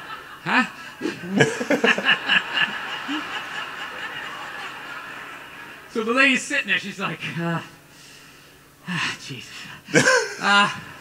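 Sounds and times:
man chuckling: 0:01.0 - 0:03.3, 0:09.9 - 0:11.0.

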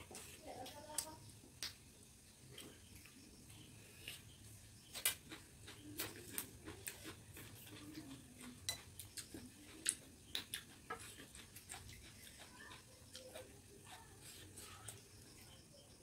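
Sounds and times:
chewing: 0:03.9 - 0:15.9.

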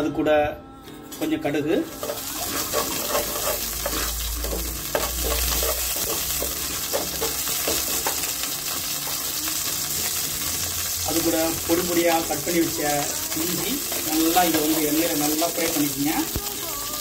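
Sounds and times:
wooden spatula scraping pan: 0:01.1 - 0:08.2
seeds sizzling in hot oil: 0:01.8 - 0:17.0.

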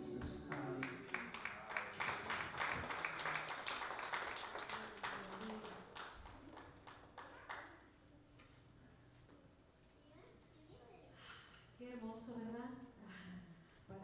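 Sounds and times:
congregation applauding: 0:00.0 - 0:07.8.

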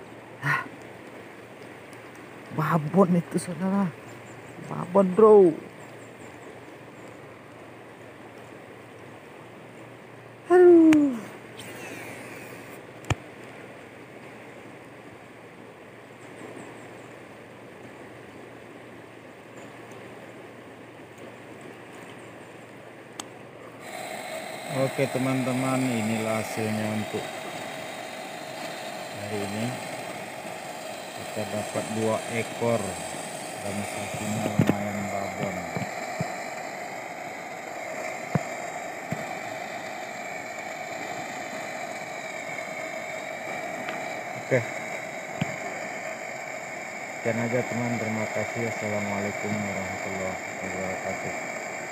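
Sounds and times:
river water rushing: 0:22.8 - 0:47.4.

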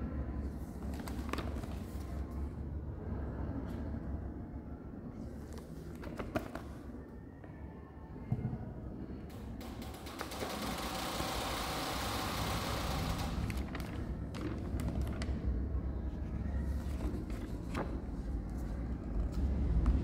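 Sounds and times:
paper pages rustling: 0:00.8 - 0:02.3, 0:05.5 - 0:06.8, 0:13.5 - 0:15.6, 0:16.3 - 0:19.5.

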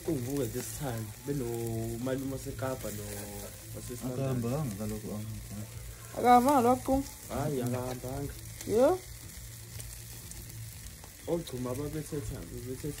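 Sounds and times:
meat sizzling on grill: 0:00.0 - 0:13.0.

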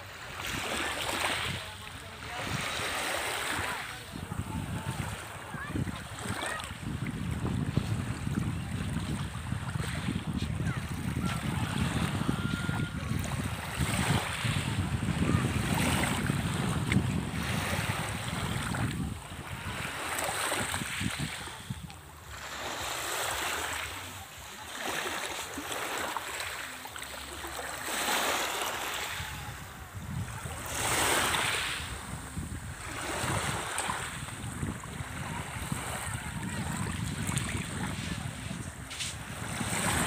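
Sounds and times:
sea waves washing in: 0:00.0 - 0:40.0
wind on microphone: 0:04.1 - 0:23.4, 0:29.0 - 0:40.0.

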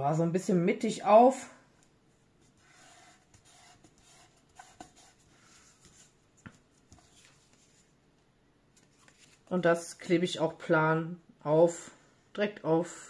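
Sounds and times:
hands rustling on card: 0:02.3 - 0:08.0, 0:08.7 - 0:09.5.

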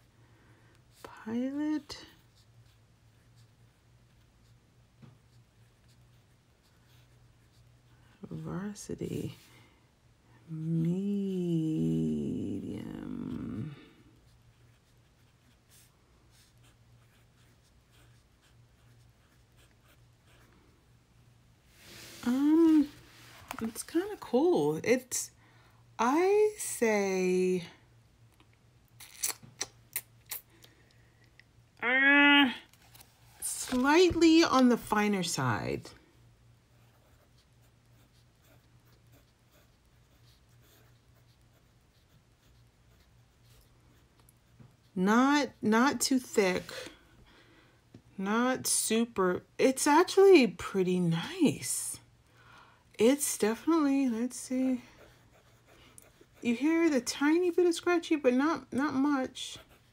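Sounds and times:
low steady hum: 0:00.0 - 0:59.9
pen nib scratching on paper: 0:05.2 - 0:08.2, 0:14.2 - 0:20.5, 0:36.7 - 0:43.7, 0:55.0 - 0:57.0.

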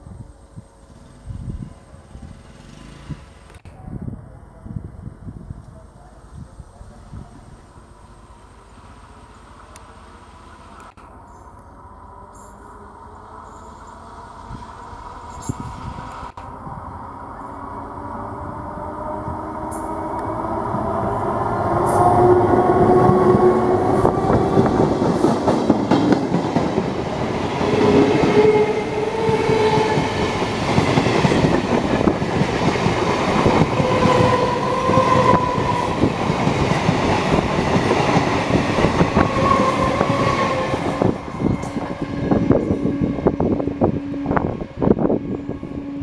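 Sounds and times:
train wheels squealing: 0:12.2 - 0:14.2, 0:15.2 - 0:16.1
train wheels clattering: 0:23.8 - 0:42.6.

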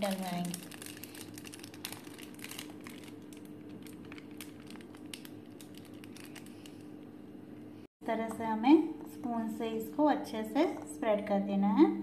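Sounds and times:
plastic piping bag crinkling: 0:00.0 - 0:07.0
steady low hum: 0:00.0 - 0:12.0.

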